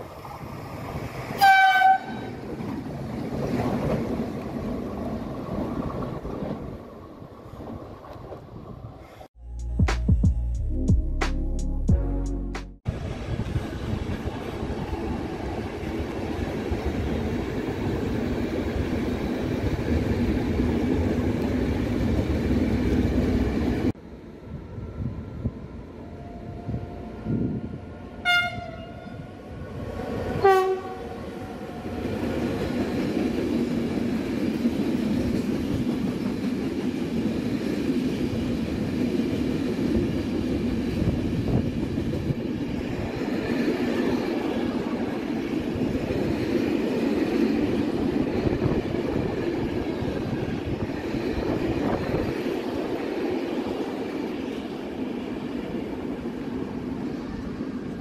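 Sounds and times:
train horn toots: 0:01.4 - 0:02.4, 0:26.2 - 0:29.3, 0:30.4 - 0:31.2.

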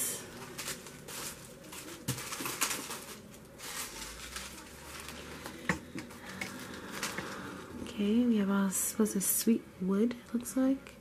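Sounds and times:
plastic packaging crinkling: 0:00.1 - 0:07.6.

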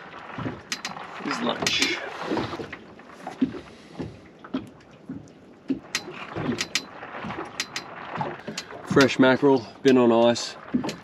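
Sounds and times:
light knocks and taps: 0:03.3 - 0:06.9.

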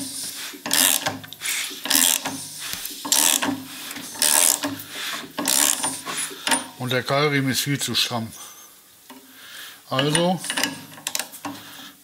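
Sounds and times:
ratchet wrench clicking: 0:00.7 - 0:01.1, 0:01.9 - 0:02.3, 0:03.1 - 0:03.5, 0:04.2 - 0:04.7, 0:05.4 - 0:06.7.

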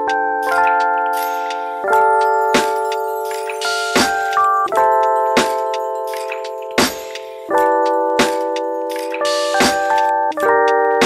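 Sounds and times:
keyboard chords: 0:00.0 - 0:11.0.

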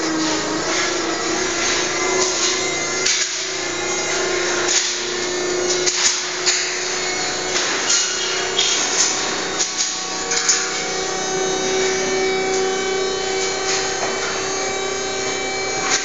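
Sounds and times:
machine humming: 0:00.0 - 0:16.0.

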